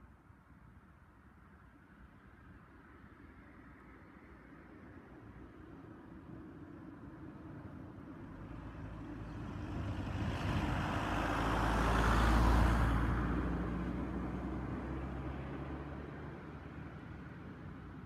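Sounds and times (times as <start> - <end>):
car driving past: 8.6 - 17.0.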